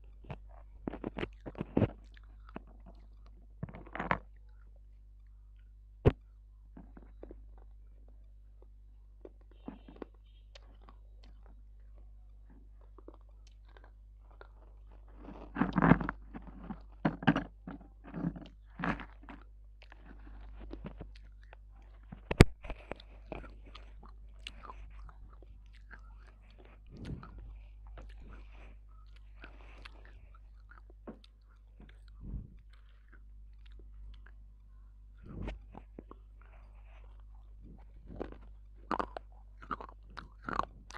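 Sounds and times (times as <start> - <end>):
crunchy chewing: 0.0 - 40.9
faint low hum: 0.0 - 40.9.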